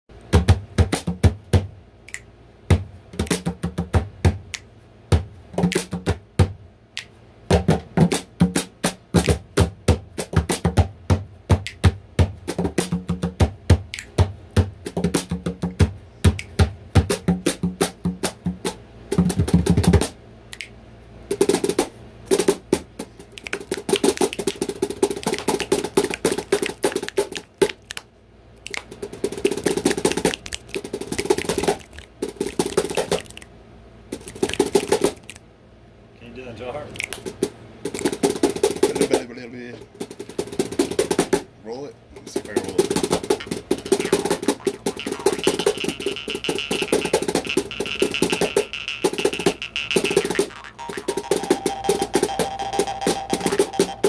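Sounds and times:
jaw harp playing: 43.2 - 54.0.

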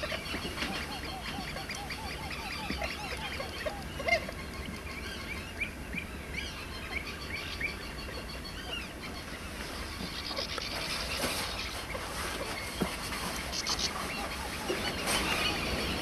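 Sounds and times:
higher ringing bird calls: 0.0 - 16.0
low honking bird calls: 7.5 - 16.0.

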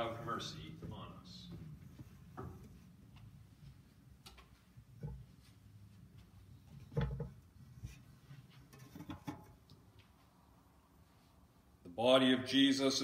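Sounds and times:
shuffling: 0.0 - 6.9.

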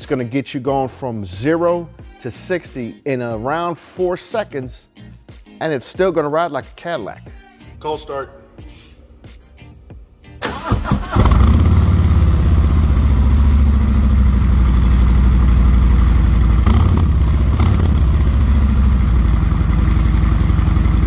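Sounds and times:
motorcycle engine idling: 11.2 - 21.0.

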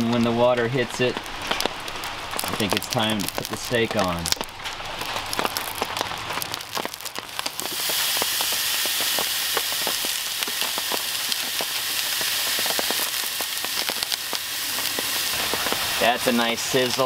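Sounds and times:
meat searing with crackling pops: 0.0 - 17.0
raindrops sizzling on hot grill: 0.0 - 17.0.

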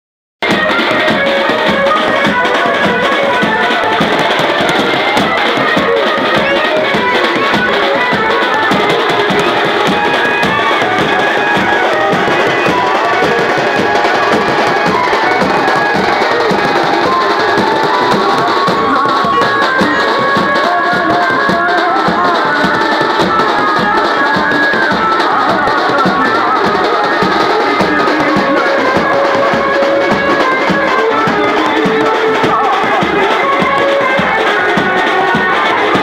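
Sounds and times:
loud music with drums: 0.4 - 36.0.

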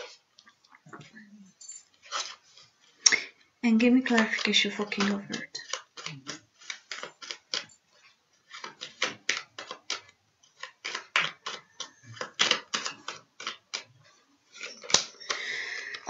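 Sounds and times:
cards being shuffled: 2.0 - 2.7, 4.0 - 13.9.

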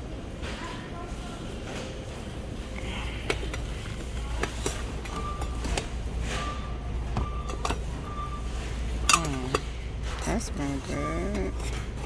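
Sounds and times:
low hum of store: 0.0 - 12.0
metal lids and glass jars clinking: 9.0 - 12.0.

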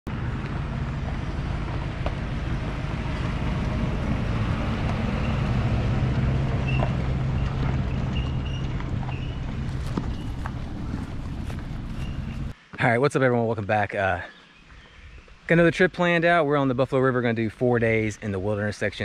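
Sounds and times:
truck engine running: 0.1 - 12.5.

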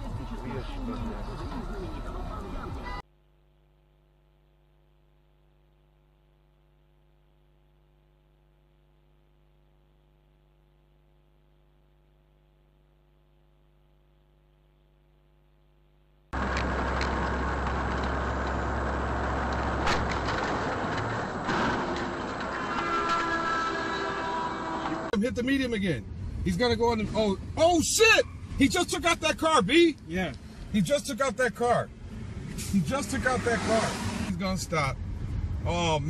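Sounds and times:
vehicle road and engine noise: 0.0 - 3.0, 16.4 - 36.0.

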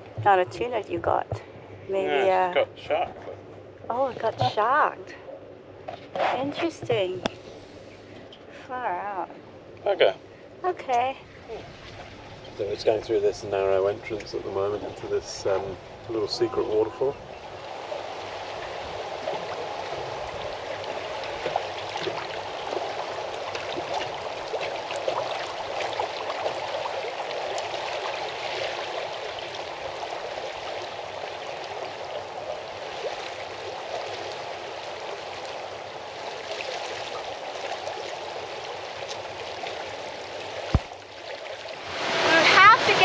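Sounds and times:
water rushing and gurgling: 9.4 - 43.0
small splashes: 17.5 - 43.0.

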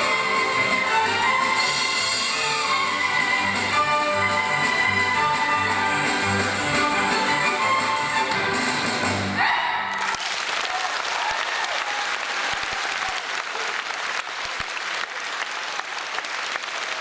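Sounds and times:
string orchestra with violin: 0.0 - 9.0
audience applauding: 9.9 - 17.0.

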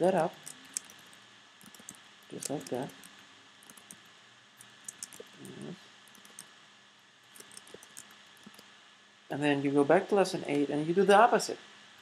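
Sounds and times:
low steady background: 0.0 - 12.0
computer mouse clicks: 0.3 - 6.5, 7.3 - 8.7.

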